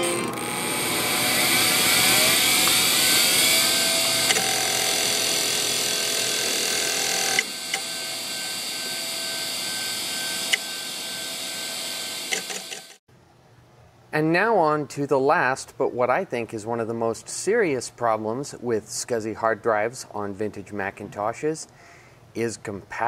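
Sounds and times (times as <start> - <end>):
hard drive whine: 0.0 - 13.0.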